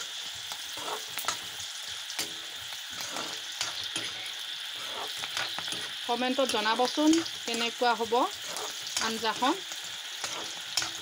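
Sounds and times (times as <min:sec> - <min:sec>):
onions sizzling in oil: 0:00.0 - 0:11.0
ladle scraping and knocking pan: 0:02.2 - 0:07.7, 0:10.2 - 0:11.0.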